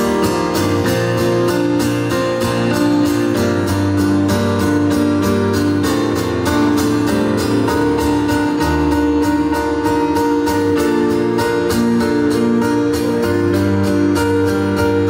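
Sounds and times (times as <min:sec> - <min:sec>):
acoustic guitar strumming: 0:00.0 - 0:15.0
keyboard chords: 0:00.0 - 0:15.0.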